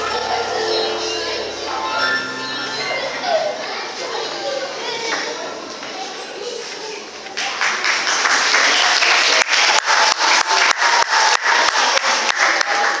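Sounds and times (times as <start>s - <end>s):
audience applause: 7.3s - 13.0s
rhythmic clapping in unison: 7.4s - 13.0s.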